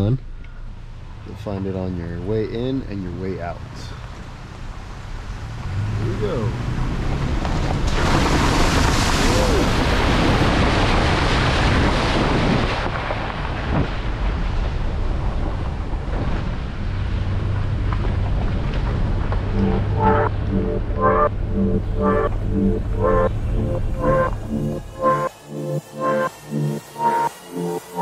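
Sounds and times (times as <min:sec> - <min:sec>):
tyres splashing through water: 0:07.7 - 0:12.4
truck engine hum: 0:16.6 - 0:28.0.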